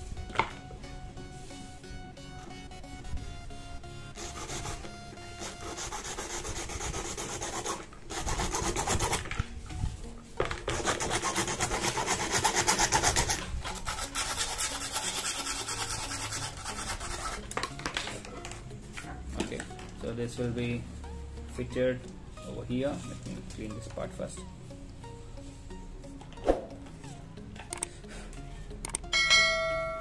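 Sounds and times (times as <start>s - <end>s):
plastic pipe being sawn by hand: 4.2s - 9.5s, 10.4s - 17.7s.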